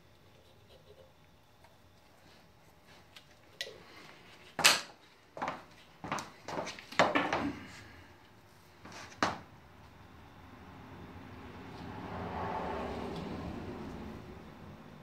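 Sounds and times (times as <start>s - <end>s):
footsteps: 4.0s - 8.0s, 8.8s - 9.5s.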